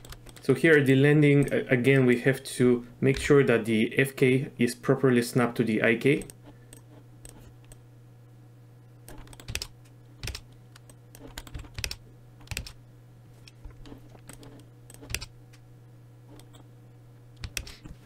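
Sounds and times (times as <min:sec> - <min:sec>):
faint low hum: 0:00.0 - 0:18.0
keyboard keys clicking: 0:09.1 - 0:12.8, 0:14.2 - 0:15.3, 0:17.4 - 0:17.7.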